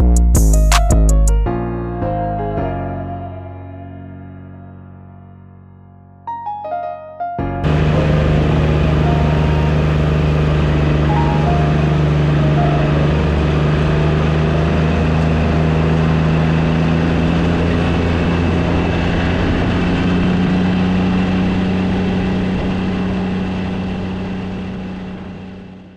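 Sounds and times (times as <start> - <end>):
riding mower engine running: 7.6 - 25.9.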